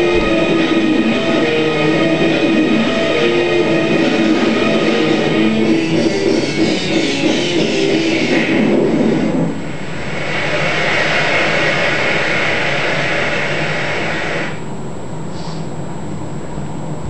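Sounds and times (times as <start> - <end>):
rock music: 0.0 - 9.8
steady rushing noise: 0.0 - 15.2.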